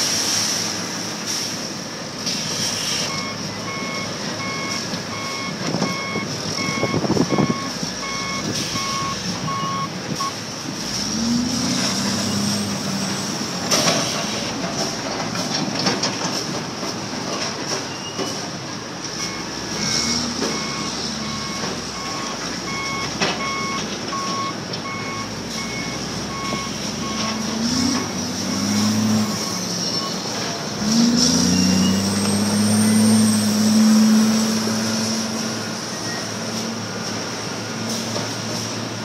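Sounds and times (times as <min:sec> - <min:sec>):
reversing alarm beeping: 0:03.0 - 0:10.4, 0:19.2 - 0:30.3, 0:31.3 - 0:34.3
engine revving: 0:10.8 - 0:14.9, 0:19.2 - 0:24.2, 0:25.0 - 0:30.1, 0:30.8 - 0:36.6.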